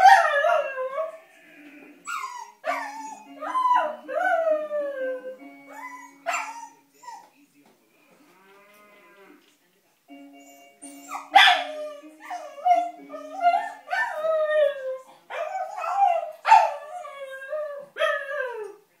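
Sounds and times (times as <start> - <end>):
puppy howling: 0.0 - 7.3, 11.0 - 18.8
toy piano notes: 5.2 - 6.6.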